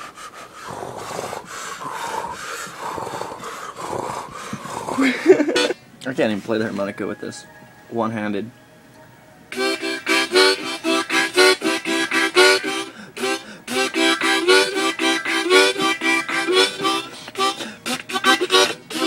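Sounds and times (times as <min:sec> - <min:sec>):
harmonica chopped chords: 0:05.4 - 0:05.9, 0:09.5 - 0:19.0.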